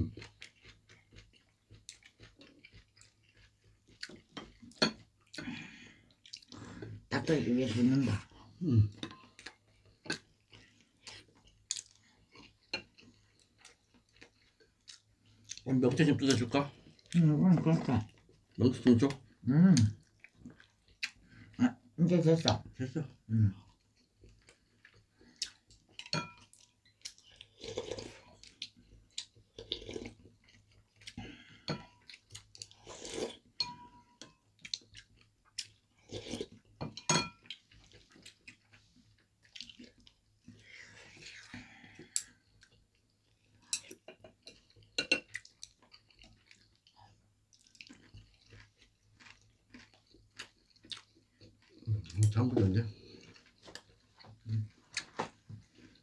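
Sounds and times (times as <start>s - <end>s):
soft chewing: 0.0s - 56.0s.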